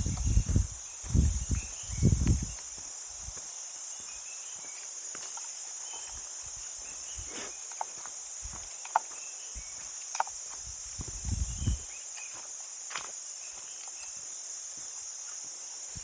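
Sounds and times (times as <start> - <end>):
footsteps on leaf litter: 0.0 - 14.9
high-pitched insect buzz: 0.0 - 16.0
sharp clicks underfoot: 4.7 - 6.2, 7.6 - 10.5, 12.1 - 14.2.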